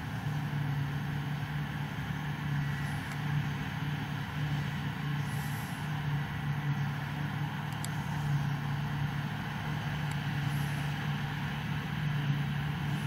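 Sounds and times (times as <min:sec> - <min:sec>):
engine and machinery drone: 0:00.0 - 0:13.0.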